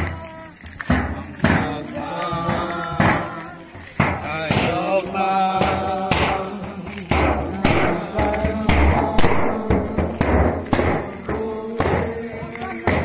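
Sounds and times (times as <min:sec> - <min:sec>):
group singing a carol: 0:00.0 - 0:13.0
sharp percussive beats: 0:00.0 - 0:13.0.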